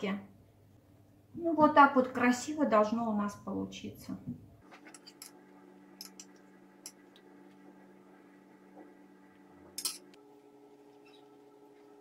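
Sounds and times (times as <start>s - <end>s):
metal spoon clinking on steel pan: 9.8s - 10.1s.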